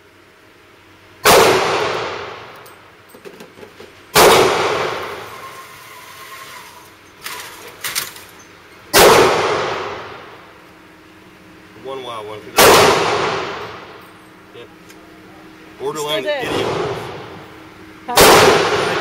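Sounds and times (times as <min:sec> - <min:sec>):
pistol shots echoing: 0:01.2 - 0:02.4, 0:04.1 - 0:05.2, 0:08.9 - 0:10.1, 0:12.6 - 0:13.7, 0:18.2 - 0:19.0.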